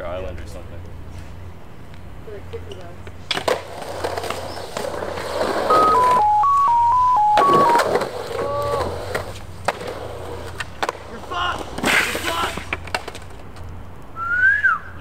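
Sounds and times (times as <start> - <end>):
skateboard rolling on concrete: 0.3 - 14.6
quick electronic beeps: 5.7 - 8.0.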